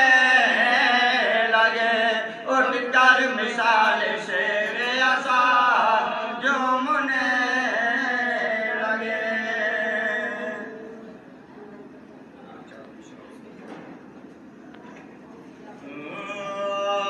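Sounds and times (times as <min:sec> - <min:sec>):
men chanting into a microphone: 0:00.0 - 0:10.9.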